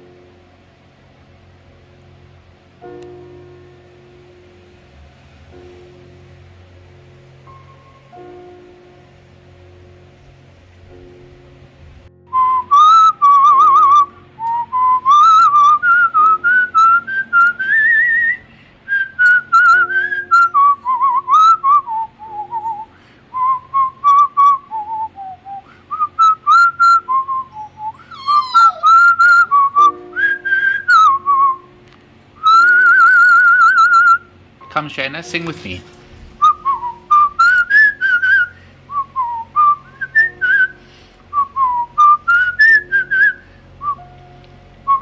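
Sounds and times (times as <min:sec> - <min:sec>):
person whistling a tune: 0:12.3 - 0:31.7, 0:32.4 - 0:34.3, 0:36.4 - 0:44.2.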